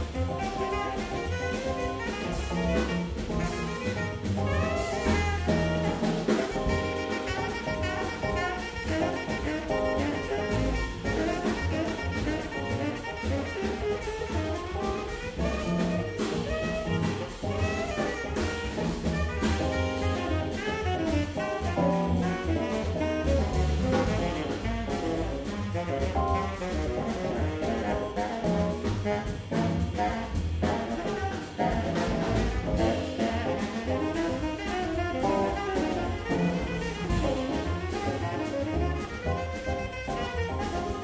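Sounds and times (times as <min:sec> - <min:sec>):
drum kit: 0:00.0 - 0:41.0
electric piano: 0:00.0 - 0:41.0
tenor saxophone soloing: 0:00.0 - 0:41.0
upright bass: 0:00.0 - 0:41.0.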